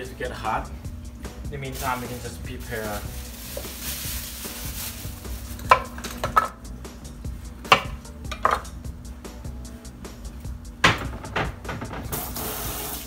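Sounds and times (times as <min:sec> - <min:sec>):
plastic bag rustling: 0:01.6 - 0:06.5
knife chopping on wooden board: 0:07.7 - 0:08.6.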